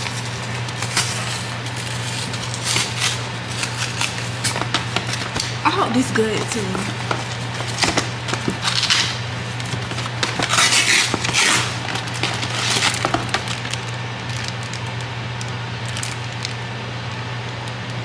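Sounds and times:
cardboard box and plastic bag rustling: 0:00.0 - 0:14.6
steady low hum: 0:00.0 - 0:18.0.

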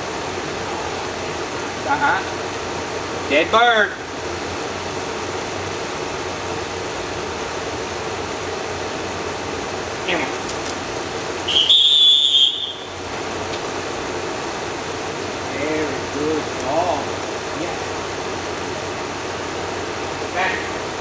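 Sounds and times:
steady background hum: 0:00.0 - 0:21.0
dog whistle blast: 0:11.4 - 0:13.0.

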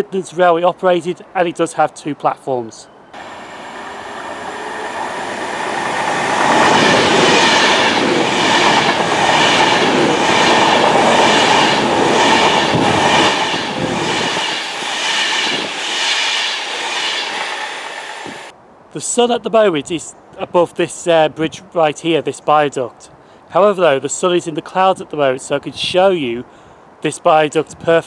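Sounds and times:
electric train passing: 0:02.9 - 0:18.5.

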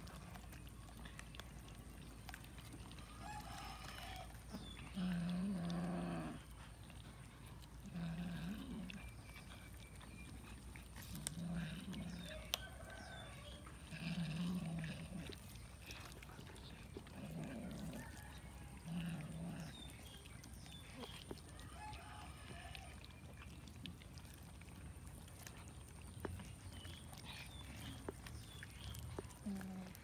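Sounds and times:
cats chewing and tearing meat: 0:00.0 - 0:30.0
cats growling: 0:00.0 - 0:30.0.

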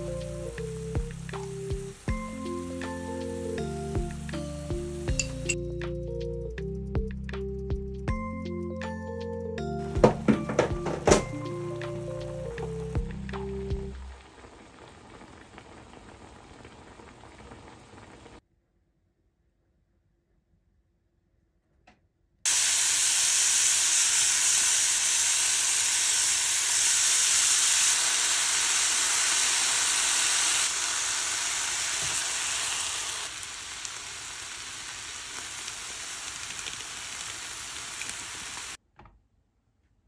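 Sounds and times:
food sizzling in a pan: 0:00.0 - 0:05.6, 0:09.8 - 0:18.4, 0:22.5 - 0:38.8.

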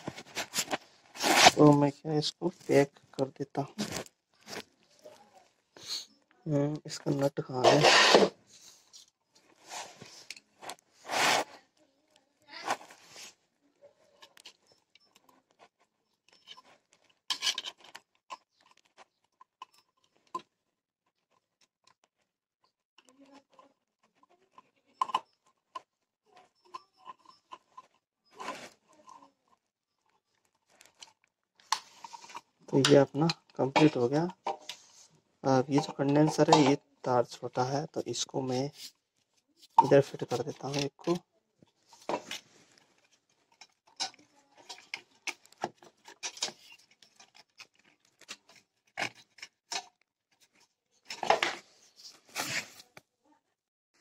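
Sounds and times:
scraping on metal: 0:07.6 - 0:08.4
screwdriver clicking and scraping: 0:14.2 - 0:20.5, 0:23.0 - 0:35.0, 0:41.8 - 0:51.6.

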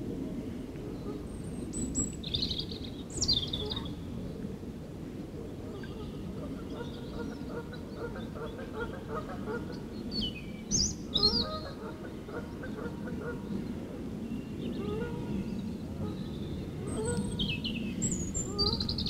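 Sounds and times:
wild birds calling: 0:05.6 - 0:13.7, 0:14.7 - 0:19.0.

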